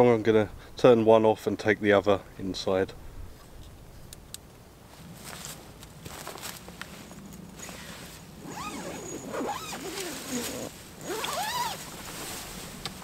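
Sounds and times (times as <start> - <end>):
tent zip being pulled open: 7.6 - 13.0.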